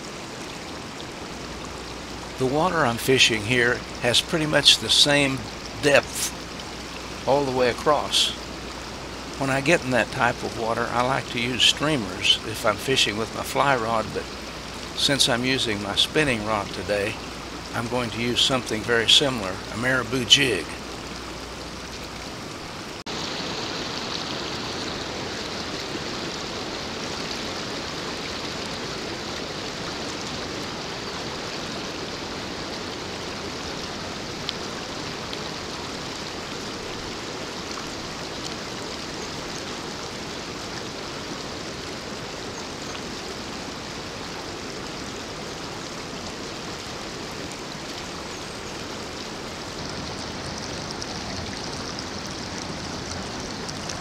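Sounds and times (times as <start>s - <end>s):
stream water flowing: 0.0s - 54.0s.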